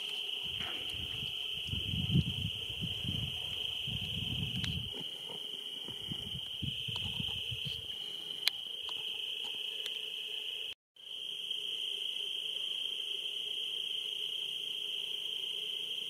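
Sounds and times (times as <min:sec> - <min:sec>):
crickets trilling: 0:00.0 - 0:16.0
low rumbling: 0:00.5 - 0:07.9
click: 0:04.6 - 0:04.8, 0:08.4 - 0:10.0.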